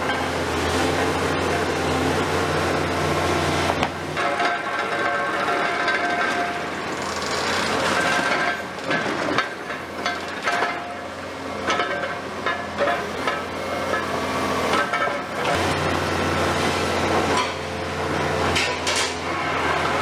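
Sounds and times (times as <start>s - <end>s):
excavator engine humming: 0.0s - 20.0s
steel rebar grinding: 3.7s - 17.8s.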